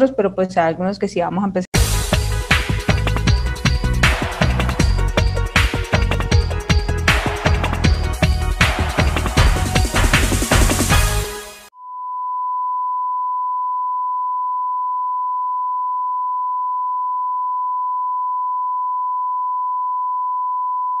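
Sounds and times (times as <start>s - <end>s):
electronic music: 1.8s - 11.7s
steady test tone beep: 11.8s - 21.0s.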